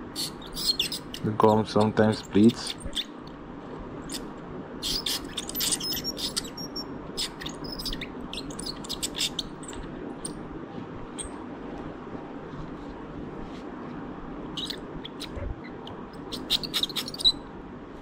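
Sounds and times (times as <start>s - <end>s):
steady low hum: 0.0s - 18.0s
dental scaler chirps and scrapes: 0.1s - 3.1s, 4.1s - 9.8s, 14.6s - 17.4s.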